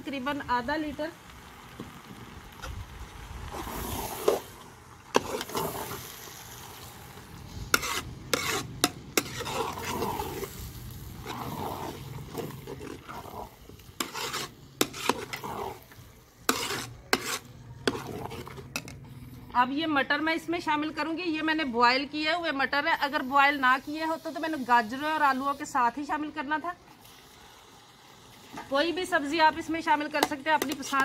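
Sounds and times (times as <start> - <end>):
food sizzling: 0.0 - 19.0, 22.8 - 31.0
ladle stirring thick mixture: 3.5 - 19.0, 30.1 - 31.0.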